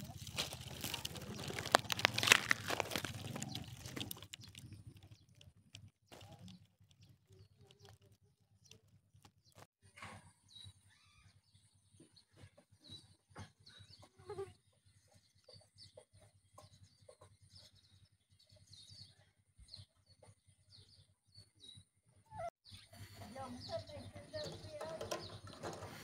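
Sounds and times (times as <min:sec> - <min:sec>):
small rustles and clicks: 0:00.0 - 0:09.7.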